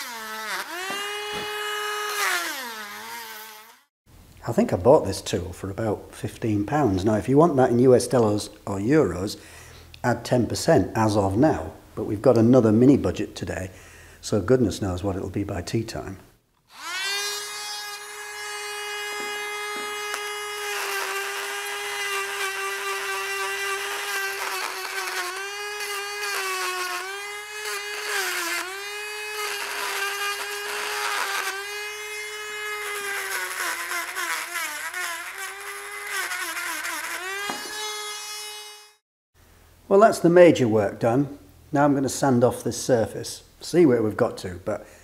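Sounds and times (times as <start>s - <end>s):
rotary tool grinding metal: 0.0s - 3.9s, 16.7s - 39.0s.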